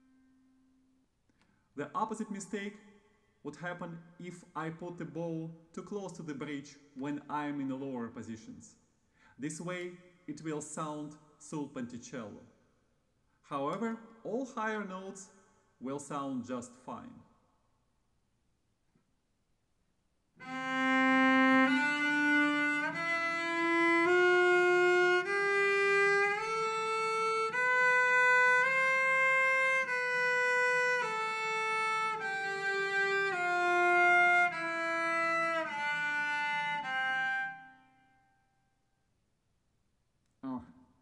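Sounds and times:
cello playing bowed scale: 0:20.4 - 0:38.2.

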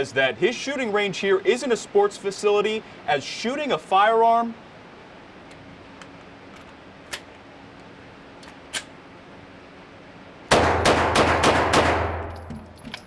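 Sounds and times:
handgun shots echoing indoors: 0:10.5 - 0:12.6.

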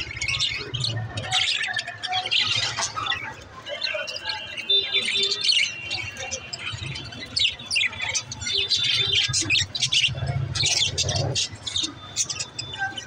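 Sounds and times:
budgerigars chirping: 0:03.8 - 0:13.0.

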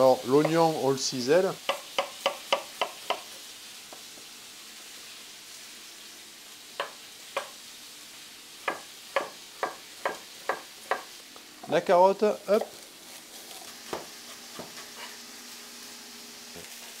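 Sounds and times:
meat sizzling in oil: 0:00.0 - 0:17.0
knife tapping wooden cutting board: 0:01.6 - 0:03.3, 0:06.8 - 0:07.5, 0:08.6 - 0:11.1.

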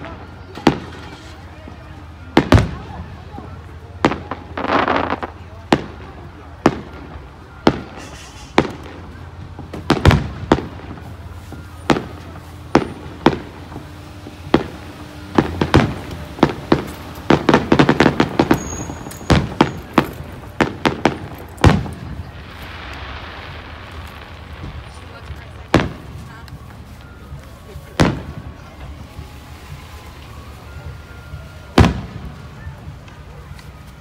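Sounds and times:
firework shells bursting: 0:14.5 - 0:24.6.

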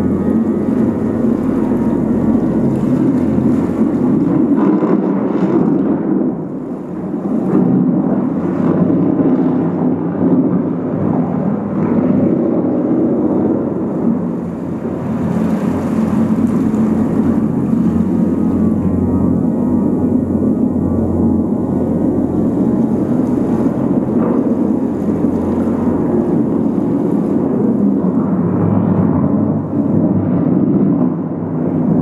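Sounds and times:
whirlpool water churning: 0:00.0 - 0:32.0.

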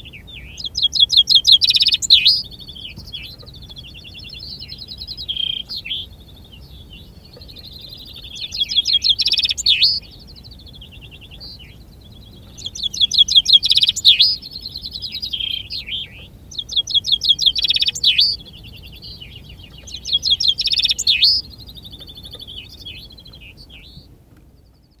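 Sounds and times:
chaffinch song trills: 0:00.0 - 0:25.0
faint distant chaffinch songs: 0:00.0 - 0:25.0.

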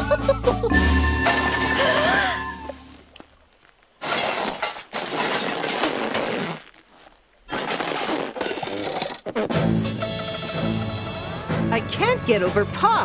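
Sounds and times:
music: 0:00.0 - 0:03.0, 0:09.5 - 0:13.0.

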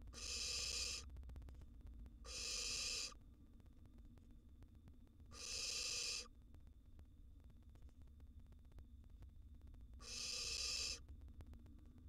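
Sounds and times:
owl nestlings hissing calls: 0:00.2 - 0:01.0, 0:02.3 - 0:03.2, 0:05.4 - 0:06.3, 0:10.0 - 0:11.0.

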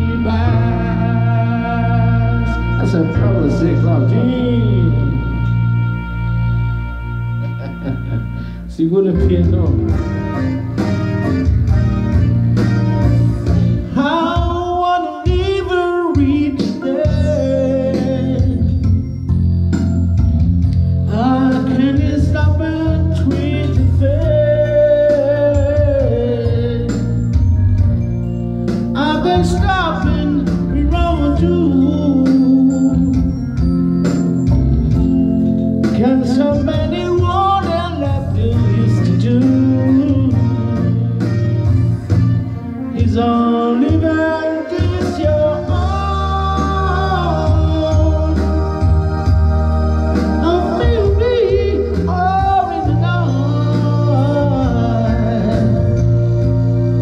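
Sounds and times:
person singing into a microphone: 0:00.0 - 0:06.2, 0:13.9 - 0:19.0, 0:21.1 - 0:27.4, 0:29.0 - 0:33.7, 0:35.8 - 0:41.2, 0:43.0 - 0:57.0
recorded backing track: 0:00.0 - 0:57.0.

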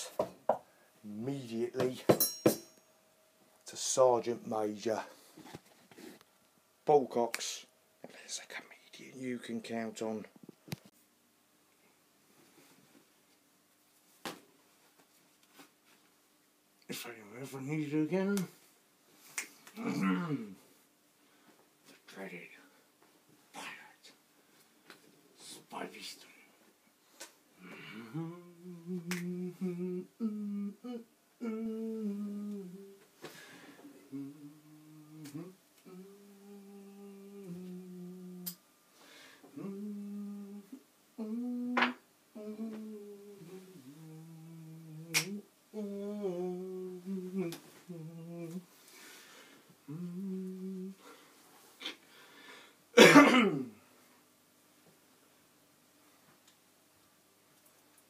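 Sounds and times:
man humming: 0:19.7 - 0:20.7, 0:27.6 - 0:33.1, 0:33.8 - 0:38.6, 0:39.4 - 0:49.0, 0:49.8 - 0:52.0
man rough vocal sound: 0:19.7 - 0:20.7, 0:27.6 - 0:33.0, 0:34.0 - 0:38.6, 0:39.5 - 0:48.7, 0:49.8 - 0:51.0.

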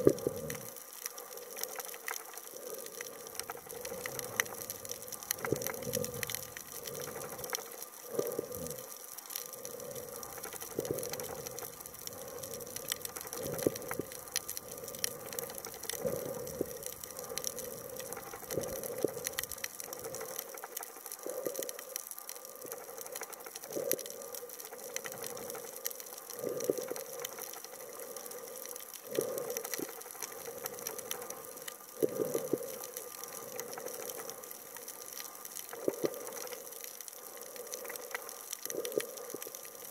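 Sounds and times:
underwater rush of water: 0:00.0 - 0:21.8
steady fine hiss: 0:00.0 - 0:39.9.

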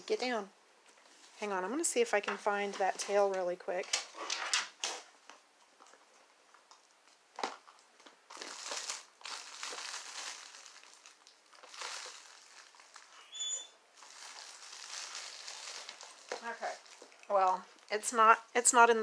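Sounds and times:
packaging rustling and crinkling: 0:06.7 - 0:13.3, 0:14.0 - 0:18.0
high squeak: 0:13.2 - 0:13.8.

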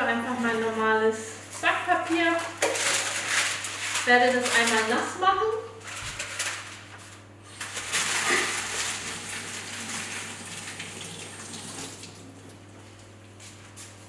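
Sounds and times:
tap running water over paper: 0:08.0 - 0:12.6.

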